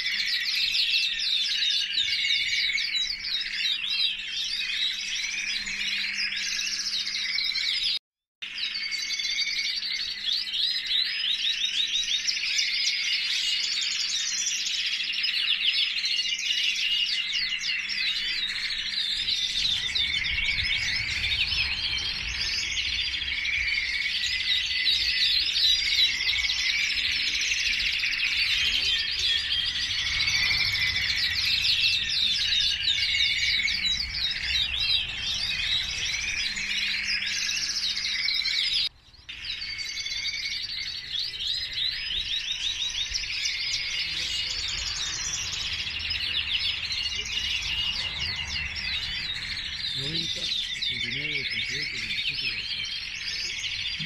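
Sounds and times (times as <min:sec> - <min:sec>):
canaries singing: 0:00.0 - 0:54.0
low rumble: 0:19.2 - 0:24.7, 0:29.0 - 0:37.0.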